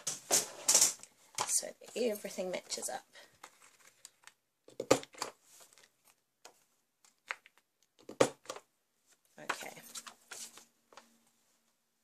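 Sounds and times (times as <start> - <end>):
paper rustling: 0.0 - 4.4, 9.1 - 11.2.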